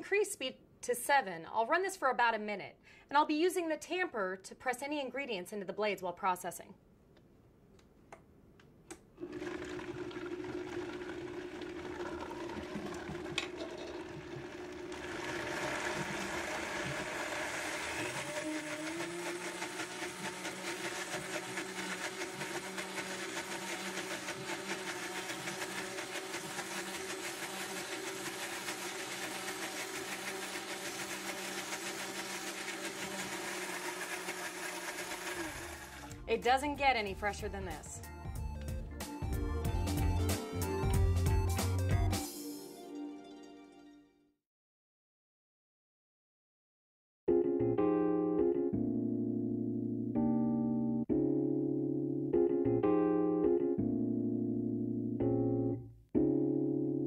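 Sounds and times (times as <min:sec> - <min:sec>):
blender motor running: 0:09.2 - 0:36.2.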